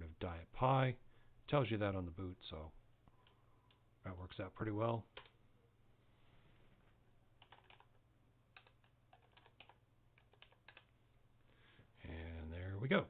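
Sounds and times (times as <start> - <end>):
keyboard typing: 5.1 - 5.4, 7.4 - 11.0.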